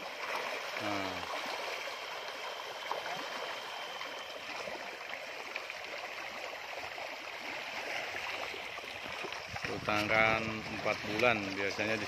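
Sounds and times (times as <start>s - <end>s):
fish splashing at the surface: 0.0s - 12.0s.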